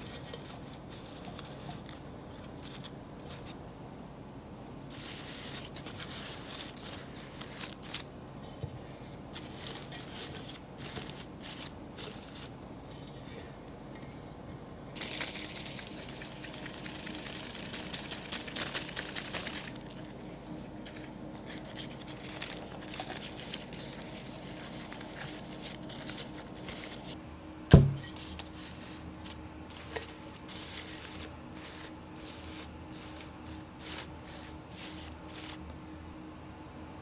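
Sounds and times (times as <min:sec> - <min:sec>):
cellophane wrap crinkling: 0:04.9 - 0:08.1, 0:09.3 - 0:12.6, 0:15.0 - 0:27.2, 0:28.2 - 0:35.6
stems and petals rustling: 0:04.9 - 0:13.4, 0:15.0 - 0:27.2, 0:28.0 - 0:35.6
glass vase thump on wooden table: 0:27.7 - 0:28.0.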